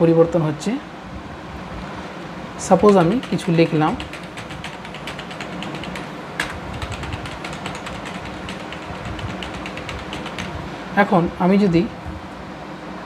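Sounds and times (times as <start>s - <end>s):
steady low hum: 0.8s - 13.0s
keyboard typing clicks: 2.8s - 10.6s.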